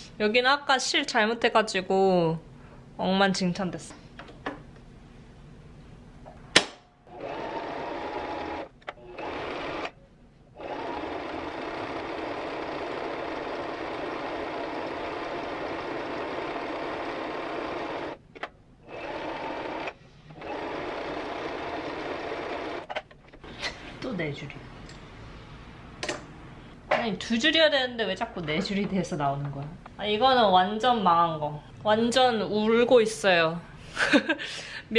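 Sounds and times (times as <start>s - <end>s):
sewing machine stitching: 7.1s - 10.0s, 10.6s - 18.2s, 18.9s - 22.9s.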